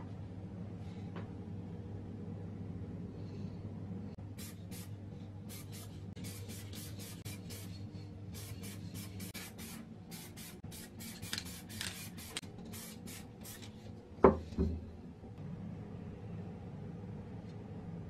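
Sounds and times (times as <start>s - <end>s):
spray paint can hissing: 5.5s - 7.8s, 8.4s - 13.6s.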